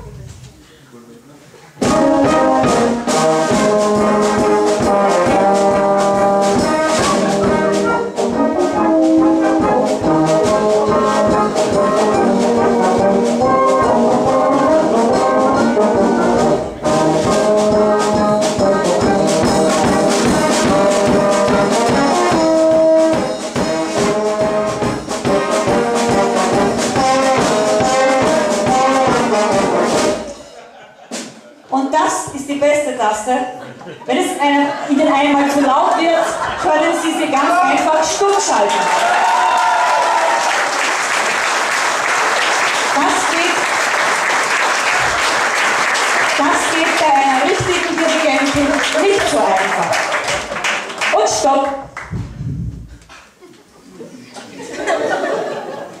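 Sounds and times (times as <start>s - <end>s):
wind band playing: 1.8s - 30.5s, 36.3s - 51.4s.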